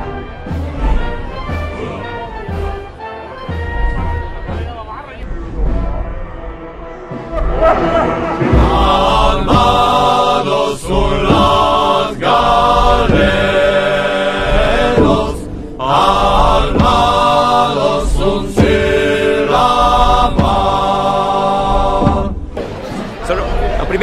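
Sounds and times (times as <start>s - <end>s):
chant-like singing: 7.1s - 24.0s.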